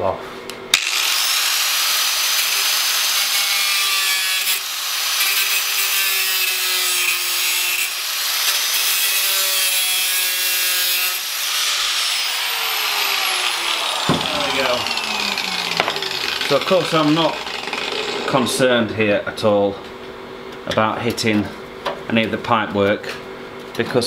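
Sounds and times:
angle grinder cutting metal: 0.7 - 18.8.

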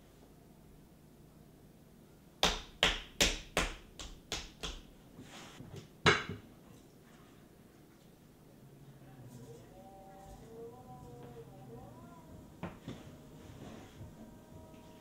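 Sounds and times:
hands slapping clay: 2.4 - 4.9.

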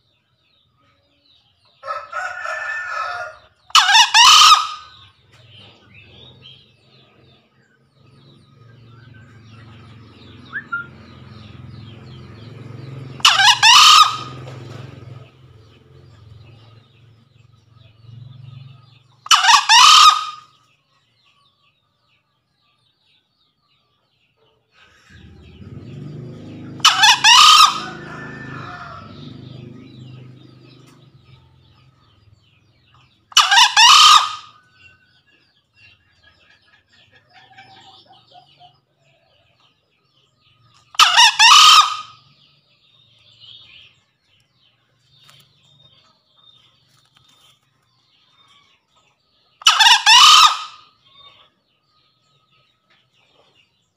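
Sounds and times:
junglefowl crowing: 1.8 - 5.1, 13.2 - 14.6, 19.2 - 20.5, 24.8 - 30.4, 33.3 - 34.9, 40.9 - 42.3, 49.6 - 50.9.

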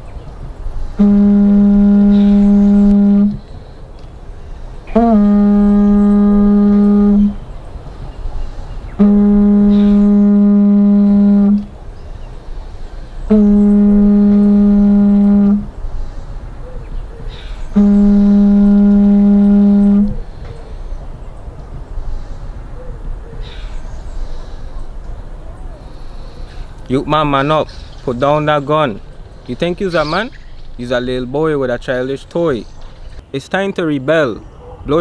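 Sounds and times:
conch shell trumpet blasts: 0.9 - 3.4, 4.9 - 7.4, 8.9 - 11.7, 13.3 - 15.7, 17.7 - 20.3.

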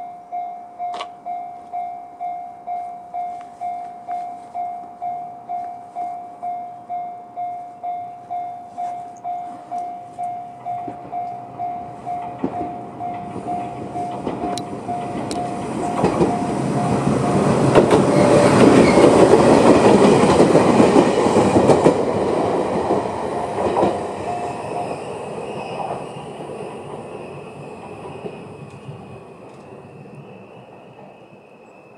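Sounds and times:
level crossing alarm bell dinging: 0.0 - 17.6
electric train wheel clatter: 9.2 - 31.7.

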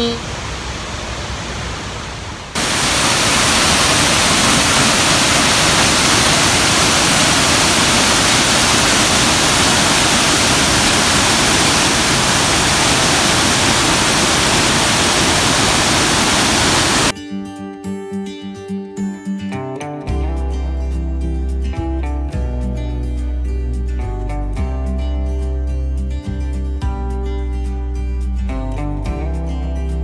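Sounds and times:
waterfall rushing: 0.2 - 17.1
acoustic guitar music: 17.2 - 30.0.

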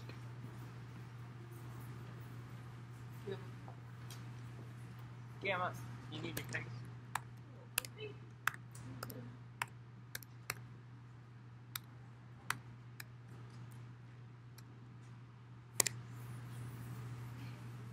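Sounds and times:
steady low hum: 0.0 - 17.9
sharp clicks and taps: 6.4 - 10.7.

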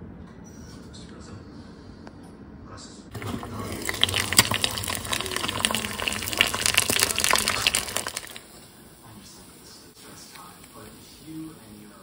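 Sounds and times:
eggs sizzling in a frying pan: 3.1 - 12.0.

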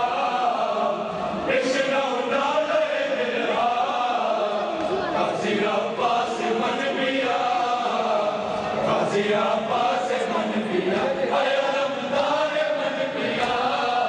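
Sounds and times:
crowd of men chanting: 0.0 - 14.0.

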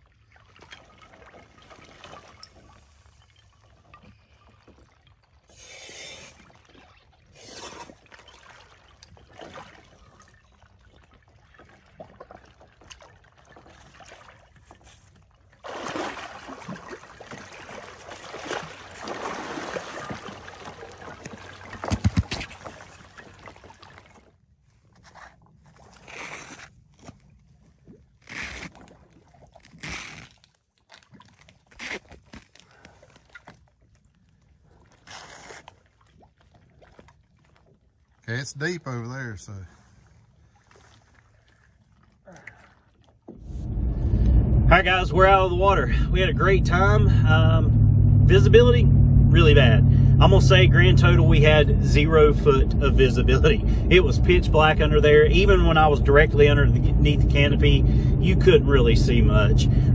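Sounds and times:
water splashing among ice: 0.0 - 38.4, 39.8 - 43.4
water churning and bubbling: 0.0 - 39.1, 39.7 - 59.9.

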